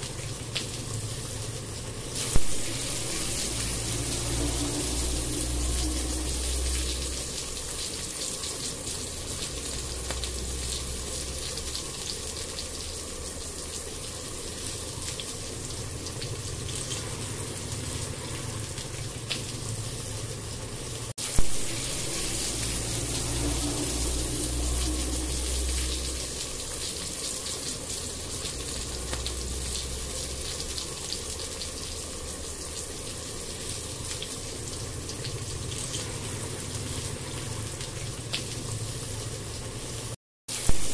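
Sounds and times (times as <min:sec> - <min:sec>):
onion sizzling in oil: 0:00.0 - 0:40.9
steady low hum: 0:02.4 - 0:08.2, 0:21.5 - 0:26.9.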